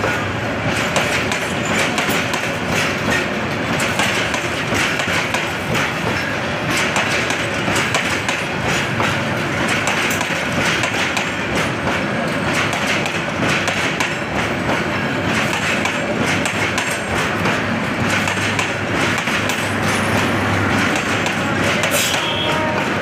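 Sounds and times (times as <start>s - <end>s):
train wheels clattering over rail joints: 0.0s - 23.0s.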